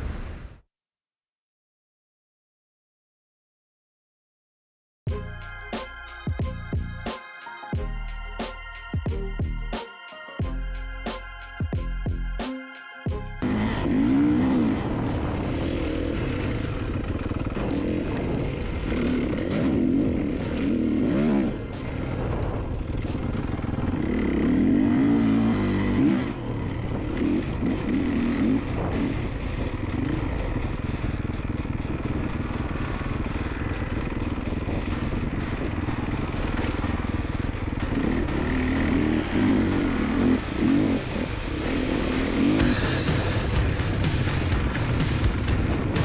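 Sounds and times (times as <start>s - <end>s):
dirt bike engine revving: 13.4s - 46.0s.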